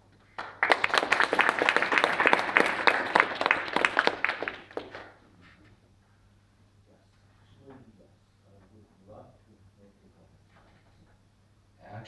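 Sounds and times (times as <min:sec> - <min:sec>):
audience applauding: 0:00.4 - 0:05.2.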